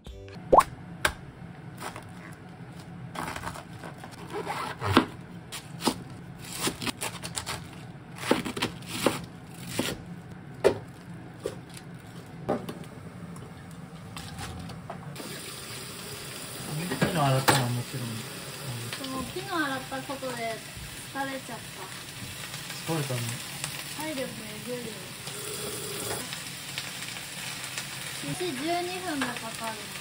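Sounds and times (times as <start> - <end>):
knife crunching through cabbage: 1.8 - 10.0.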